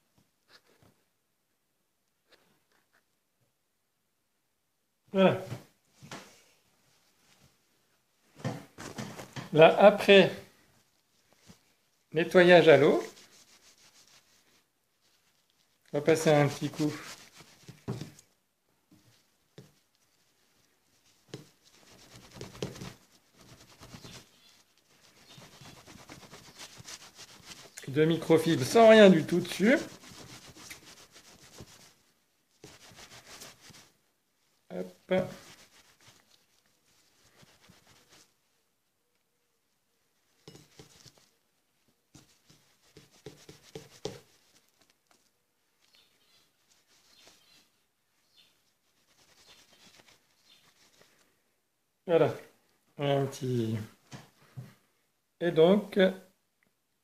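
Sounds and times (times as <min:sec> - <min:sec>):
cloth rubbing metal object: 0:12.2 - 0:18.2, 0:20.0 - 0:32.0, 0:32.6 - 0:33.9, 0:35.1 - 0:38.4, 0:40.3 - 0:41.4, 0:48.4 - 0:51.0.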